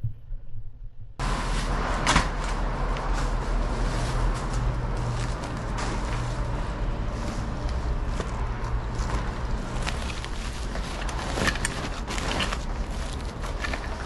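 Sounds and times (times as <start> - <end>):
rustling and clattering handling: 1.5 - 14.0.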